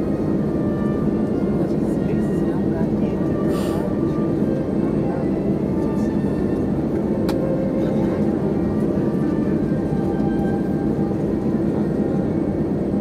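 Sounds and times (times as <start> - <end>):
jet engines idling: 0.0 - 13.0.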